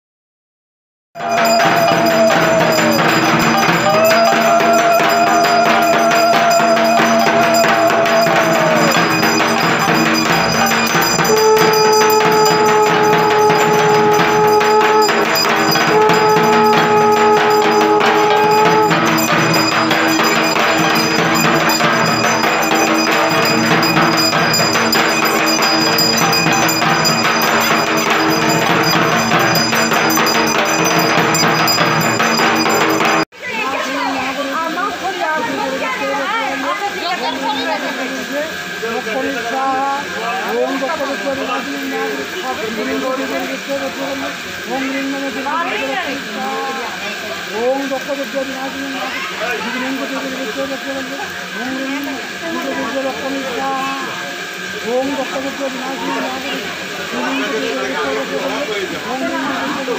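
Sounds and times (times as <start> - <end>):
bells ringing: 1.2 - 59.9
percussion clattering: 1.2 - 59.9
long horn-like tone: 10.9 - 21.1.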